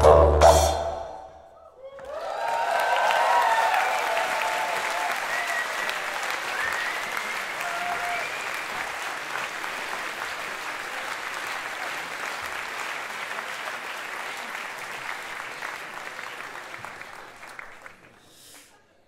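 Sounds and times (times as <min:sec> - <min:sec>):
crowd high calls: 0:00.6 - 0:09.0
audience applauding: 0:01.8 - 0:18.7.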